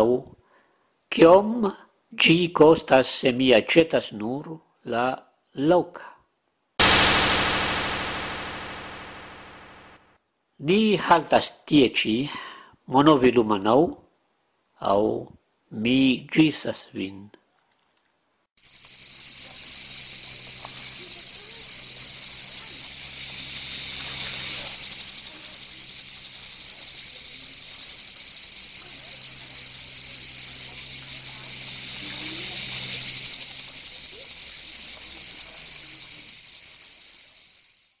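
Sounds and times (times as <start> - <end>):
insects trilling: 18.6 - 38.0.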